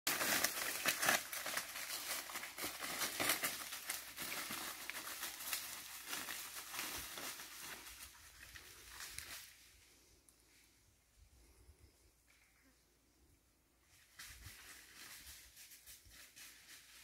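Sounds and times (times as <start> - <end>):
footsteps on dry leaves: 0.1 - 9.7, 14.0 - 17.0.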